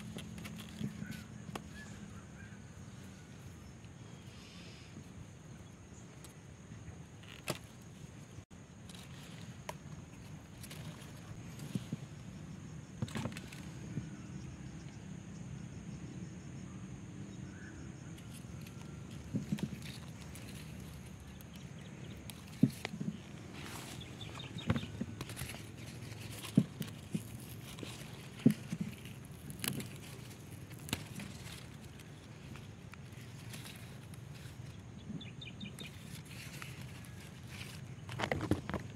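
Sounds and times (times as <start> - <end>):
stems and leaves clicking: 0.0 - 4.2, 4.9 - 15.0, 18.0 - 38.9
hands rustling through plants: 8.8 - 12.4, 18.2 - 38.9.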